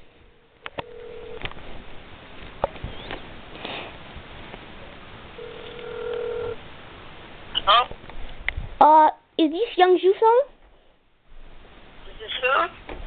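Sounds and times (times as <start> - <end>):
phone ringback tone: 0.8 - 1.4, 5.4 - 6.6.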